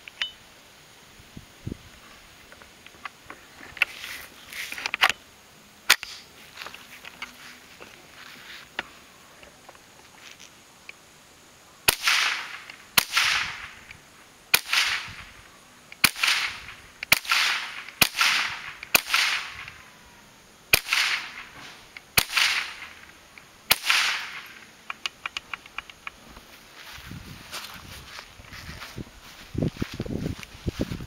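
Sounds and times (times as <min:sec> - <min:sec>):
rifle shots with echo: 0:11.9 - 0:13.8, 0:14.5 - 0:15.2, 0:16.0 - 0:19.7, 0:20.7 - 0:21.6, 0:22.2 - 0:23.0, 0:23.7 - 0:24.6.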